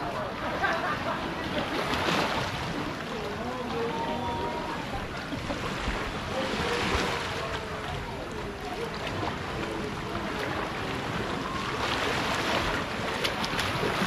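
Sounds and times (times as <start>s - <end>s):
water rushing past a boat: 0.0s - 14.0s.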